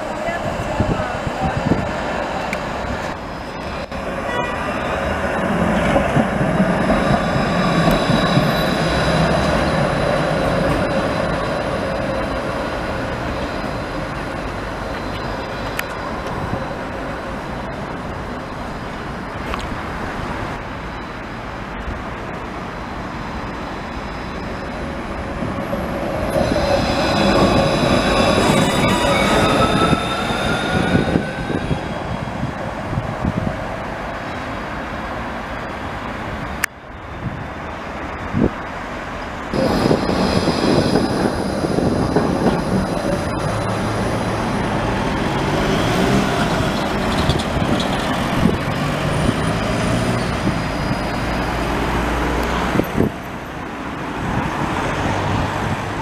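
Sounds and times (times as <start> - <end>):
tram wheels rumbling on rails: 0.0 - 56.0
tram motor whine rising: 1.2 - 18.7, 23.3 - 33.0, 39.6 - 52.8
high-pitched squeal and whine: 23.4 - 32.7, 39.6 - 51.9.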